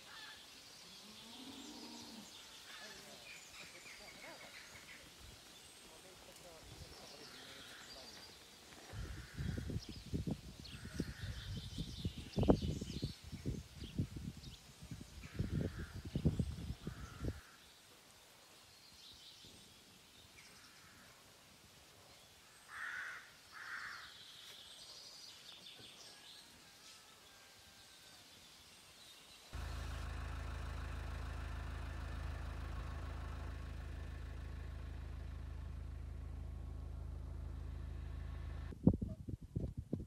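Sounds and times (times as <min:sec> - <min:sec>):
bird calling: 0:00.0 - 0:09.7
wind buffeting microphone: 0:08.9 - 0:17.4, 0:38.7 - 0:40.0
car engine hum and road noise: 0:29.6 - 0:38.8.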